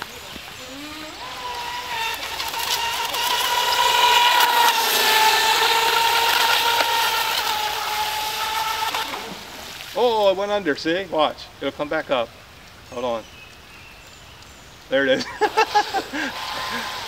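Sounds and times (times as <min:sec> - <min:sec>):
rc boat motor whine: 0:00.0 - 0:09.8, 0:15.3 - 0:17.0.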